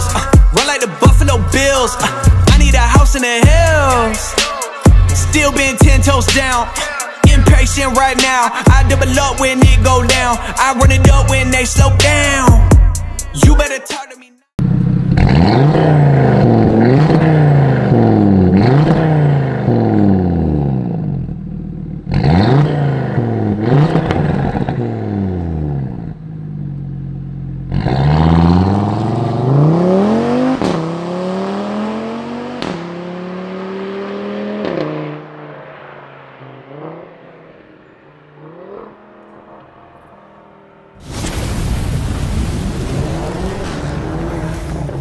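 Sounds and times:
car engine revving: 0.0 - 13.5, 14.6 - 41.6, 42.2 - 45.0
car accelerating with upshifts: 14.6 - 41.0.

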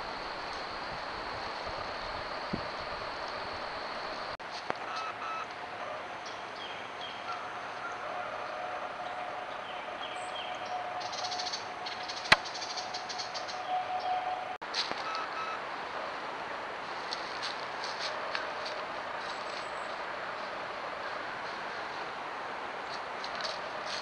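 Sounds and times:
steady hiss: 0.0 - 4.8
small birds chirping: 9.0 - 14.2.

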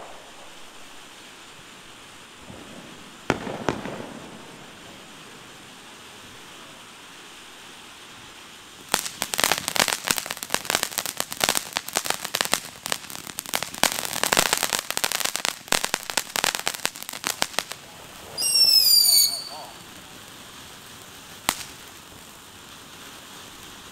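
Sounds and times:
firework crackling: 0.0 - 23.9
firework hissing: 0.0 - 23.9
high falling whistle: 18.4 - 19.8.

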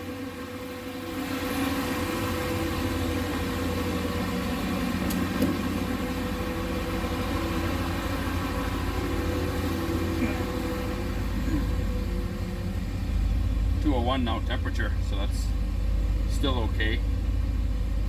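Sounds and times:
engine idling: 0.0 - 18.0.

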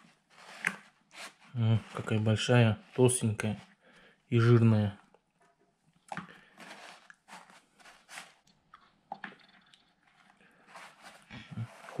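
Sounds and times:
salt crunching and scraping: 6.4 - 8.9, 10.1 - 12.0.

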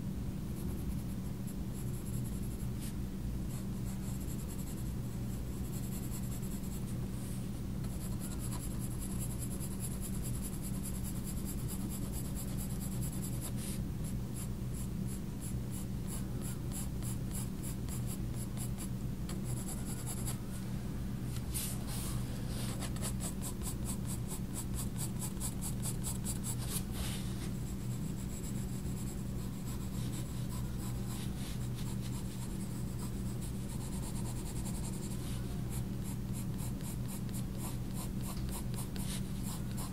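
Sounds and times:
steady low hum: 0.0 - 39.9
coloured pencil scratching on paper: 7.8 - 20.4, 22.6 - 27.0, 27.7 - 39.9.

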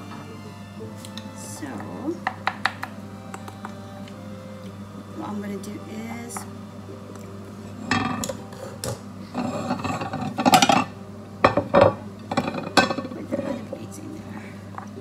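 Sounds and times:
ceramic plates knocking on wood: 2.2 - 2.9, 11.5 - 13.1
spatula scraping a saucepan: 7.8 - 13.8.

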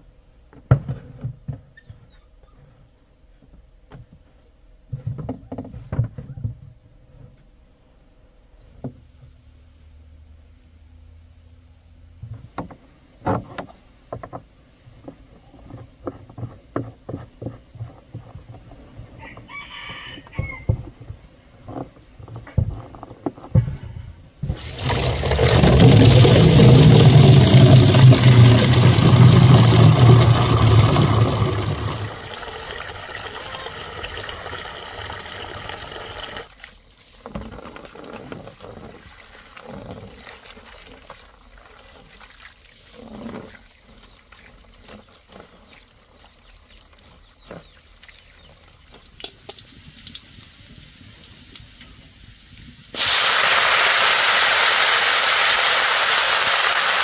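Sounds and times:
water pouring: 24.4 - 46.2, 53.0 - 57.0
loud steady hiss: 49.5 - 57.0.

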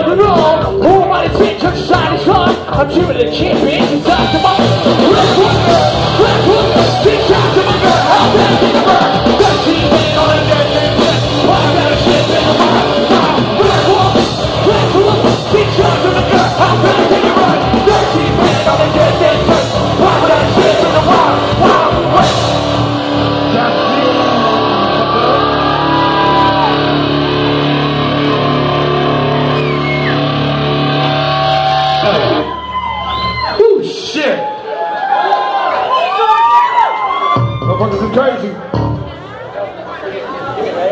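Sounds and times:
singer: 0.0 - 27.0
live rock band playing: 0.0 - 34.1, 37.2 - 39.5.

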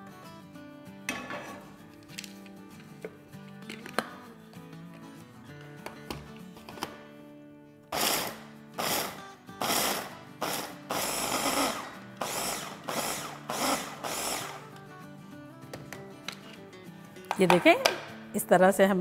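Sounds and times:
electric food chopper grinding nuts: 7.9 - 14.7.

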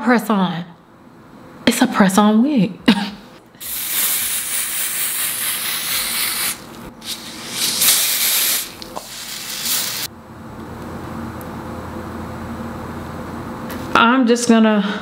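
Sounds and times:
aerosol spray hissing: 3.6 - 10.1.

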